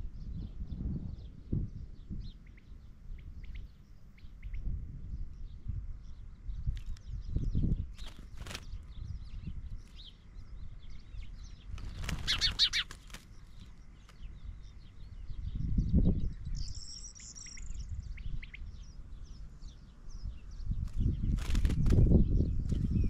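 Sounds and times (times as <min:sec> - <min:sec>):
small birds chirping: 0:00.0 - 0:23.0
wind buffeting microphone: 0:00.0 - 0:23.0
wings flapping: 0:08.0 - 0:08.9, 0:11.7 - 0:14.3, 0:20.8 - 0:22.9
high bird trill: 0:08.0 - 0:23.0.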